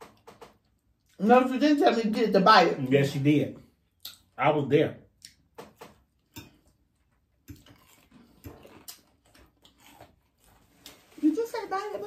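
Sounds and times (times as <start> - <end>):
chewing smacks: 3.9 - 4.3, 5.2 - 11.0.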